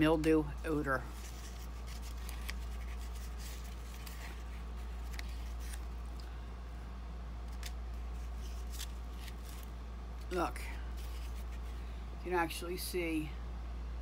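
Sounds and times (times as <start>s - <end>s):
steady low hum: 0.0s - 14.0s
cardstock rustling: 0.2s - 6.3s, 7.5s - 11.8s
crisp paper clicks: 1.2s - 6.3s.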